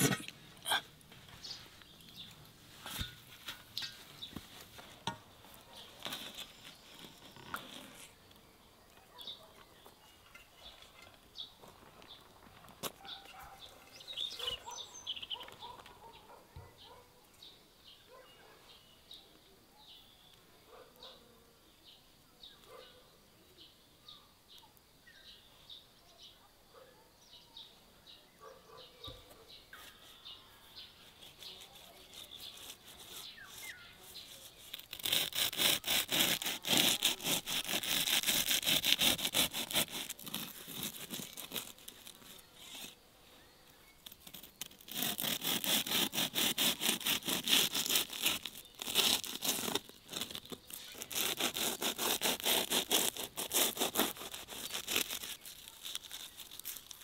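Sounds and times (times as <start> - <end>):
knife sawing through crisp crust: 6.0 - 8.2, 29.8 - 43.0, 44.1 - 57.0.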